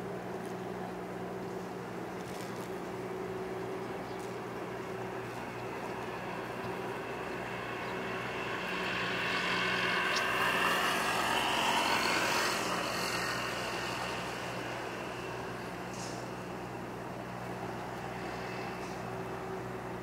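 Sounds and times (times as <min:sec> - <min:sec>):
low mechanical hum: 0:00.0 - 0:20.0
vehicle passing: 0:04.3 - 0:18.9.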